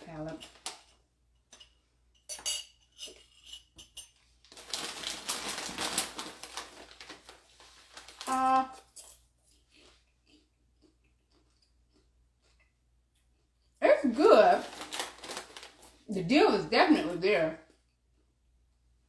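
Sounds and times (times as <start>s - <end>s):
snack bag crinkling: 4.4s - 12.6s, 14.2s - 16.1s.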